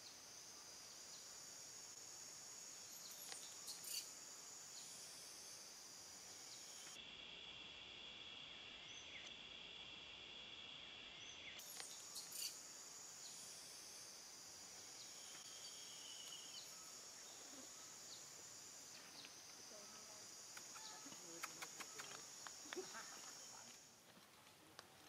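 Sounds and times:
insects buzzing: 0:00.0 - 0:24.1
faint clicks: 0:20.5 - 0:25.0.

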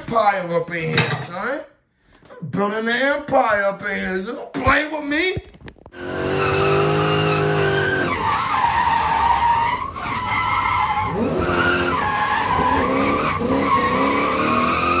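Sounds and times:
car engine revving: 0:06.0 - 0:15.0
tyres squealing: 0:06.0 - 0:15.0.

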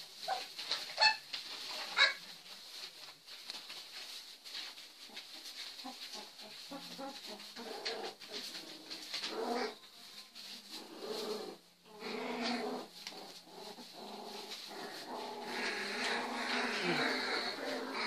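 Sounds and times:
puppies growling and whining: 0:05.8 - 0:09.9, 0:10.7 - 0:18.0.

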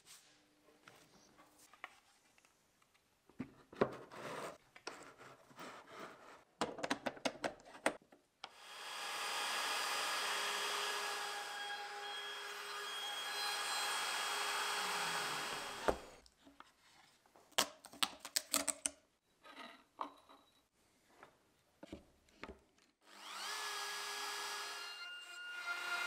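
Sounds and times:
wood router running: 0:08.5 - 0:16.2, 0:23.1 - 0:26.0.

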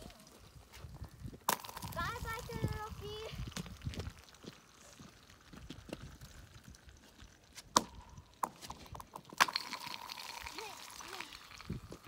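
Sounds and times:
rocks cracking on ice: 0:03.4 - 0:12.0.

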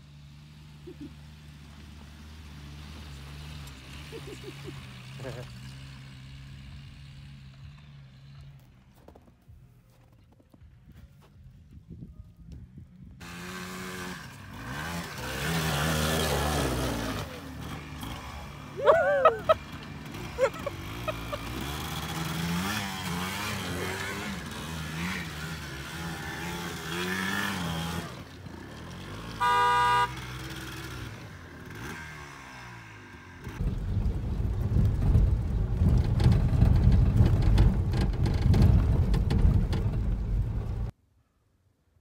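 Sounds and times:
engines revving: 0:00.0 - 0:08.7, 0:13.2 - 0:40.9
horn toot: 0:29.3 - 0:30.4
loud low rumble: 0:33.6 - 0:40.9.

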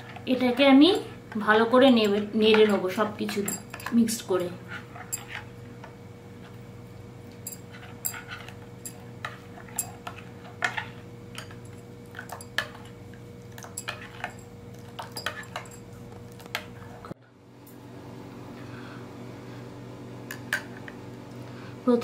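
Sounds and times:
spoon clinking in glass bowl: 0:02.0 - 0:04.0, 0:07.4 - 0:09.0, 0:09.7 - 0:10.2, 0:13.5 - 0:16.0.

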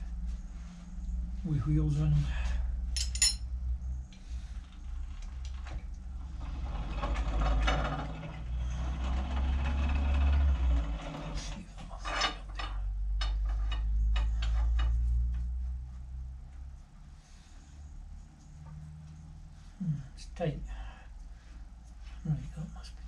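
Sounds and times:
lathe motor hum: 0:06.2 - 0:11.6.

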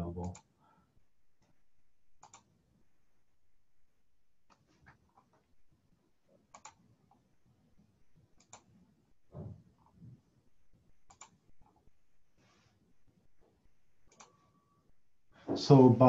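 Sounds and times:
computer mouse clicks: 0:00.2 - 0:00.5, 0:02.2 - 0:02.5, 0:06.5 - 0:07.2, 0:08.4 - 0:08.7, 0:11.0 - 0:11.9, 0:14.1 - 0:14.4.

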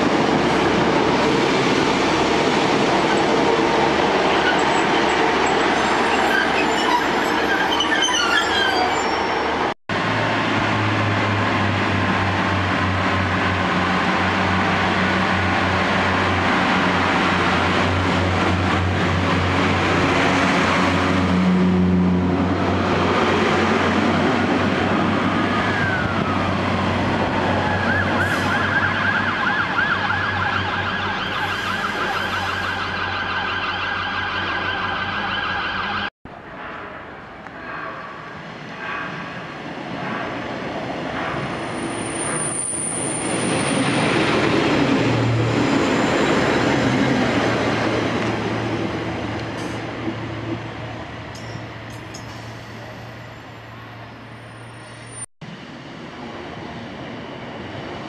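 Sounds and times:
diesel train moving: 0:00.0 - 0:58.0
high squeals: 0:04.4 - 0:09.6.

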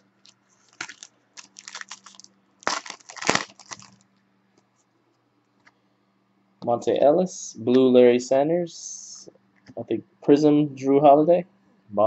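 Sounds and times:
wrapper crinkling and tearing: 0:00.0 - 0:04.1.

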